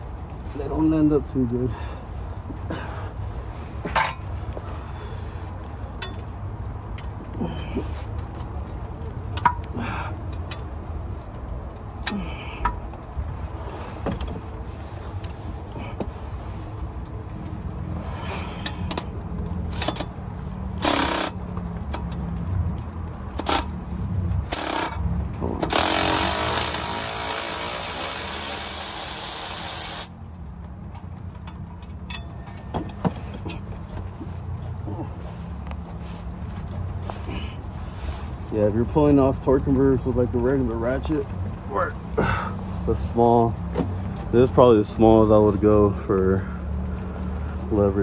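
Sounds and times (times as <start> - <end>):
power tool bursts: 20.8 - 21.3, 24.5 - 25.0, 25.6 - 30.1
metal clinks: 31.3 - 33.8.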